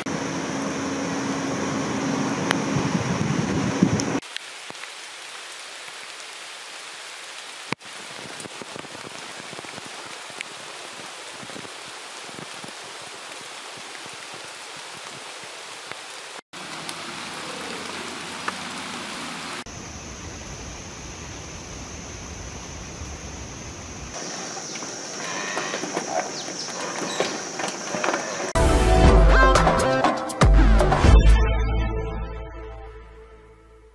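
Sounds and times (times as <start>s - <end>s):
rain on foliage: 4.0s - 28.6s
water drips and ticks: 7.7s - 19.0s.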